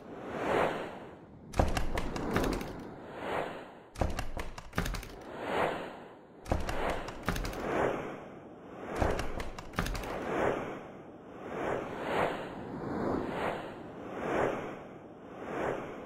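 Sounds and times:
sharp clicks and thuds: 0:01.5 - 0:02.9, 0:04.0 - 0:05.3, 0:06.4 - 0:07.7, 0:09.0 - 0:10.2.

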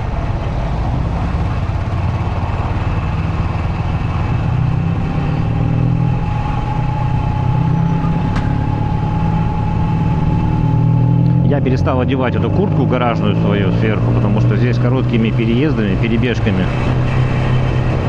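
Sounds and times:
motorcycle engine running: 0:00.0 - 0:18.0
thin steady whine: 0:05.5 - 0:11.8.

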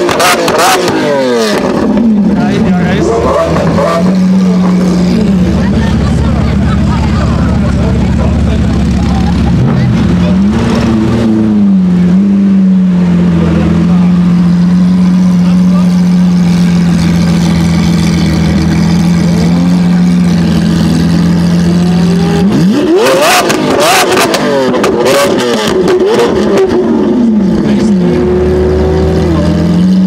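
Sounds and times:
car engine idling and revving: 0:00.0 - 0:30.0
exhaust pops: 0:22.4 - 0:26.9.

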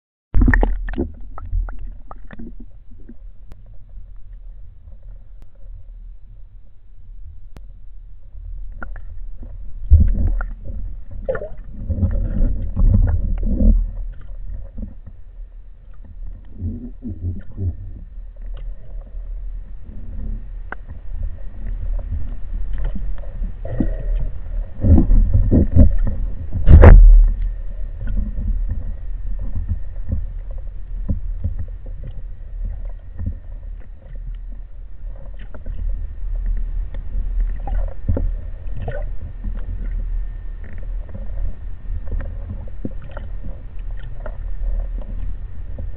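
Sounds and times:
underwater rumble: 0:00.4 - 0:45.9
loud sharp thud: 0:26.7 - 0:27.2.

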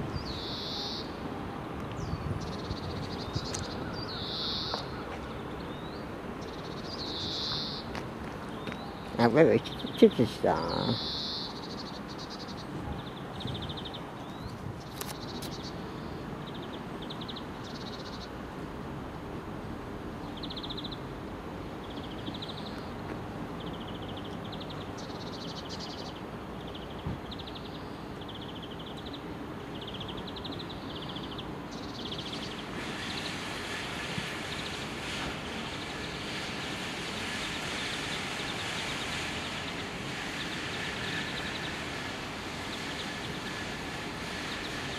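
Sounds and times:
small bird chirping trills: 0:00.2 - 0:01.1, 0:02.0 - 0:07.9, 0:08.5 - 0:18.3
passenger train hissing: 0:02.5 - 0:07.9, 0:09.1 - 0:14.2, 0:27.6 - 0:44.9.

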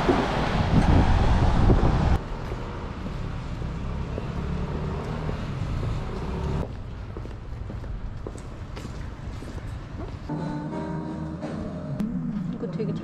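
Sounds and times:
wind rumbling on microphone: 0:00.0 - 0:02.3
city street traffic: 0:00.0 - 0:13.0.

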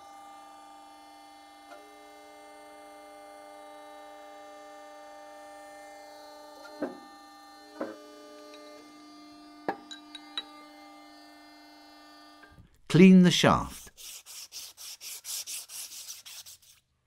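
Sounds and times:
hydraulic press humming: 0:06.6 - 0:11.0.

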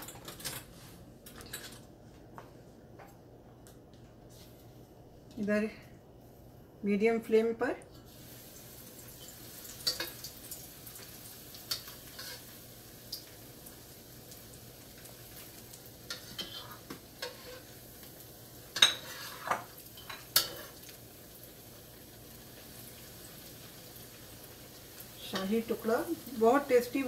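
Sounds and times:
bread sizzling in a wok: 0:08.0 - 0:27.0
spatula scraping a pan: 0:11.7 - 0:12.5, 0:16.1 - 0:17.8, 0:18.7 - 0:20.8.

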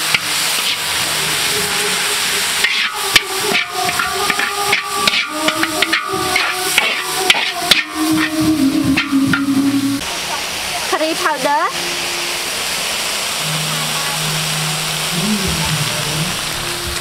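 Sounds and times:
water sizzling in a hot wok: 0:00.0 - 0:17.0
metal spatula scraping a wok: 0:00.1 - 0:10.0.

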